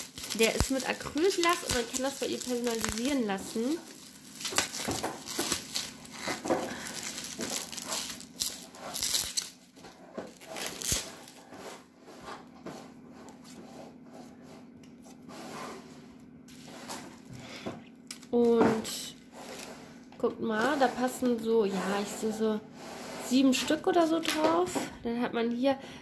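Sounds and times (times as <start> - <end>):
bubble wrap crinkling: 0.0 - 11.9.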